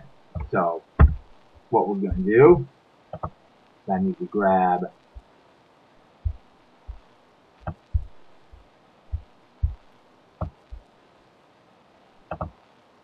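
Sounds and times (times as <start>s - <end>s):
soft desk thumps: 0.4s - 1.2s
computer mouse clicks: 12.3s - 12.5s.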